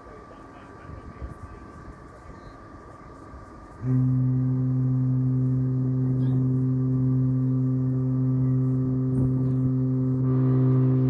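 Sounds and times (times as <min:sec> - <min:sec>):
ship's horn blast: 0:03.8 - 0:11.0.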